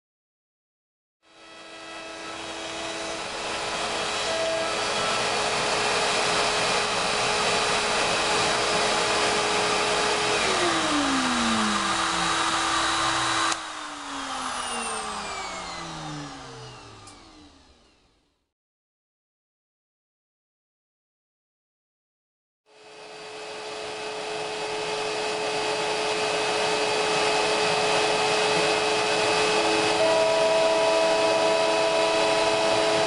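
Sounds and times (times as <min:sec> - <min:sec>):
router spindle whine: 0:01.3 - 0:18.3, 0:22.8 - 0:33.0
motor winding down: 0:01.5 - 0:18.4.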